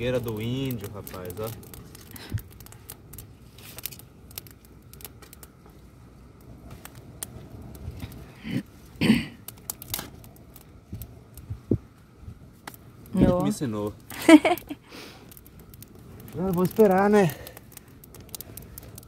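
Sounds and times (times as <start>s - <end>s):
campfire crackling: 0.0s - 19.0s
twigs snapping: 0.9s - 5.6s, 15.2s - 19.0s.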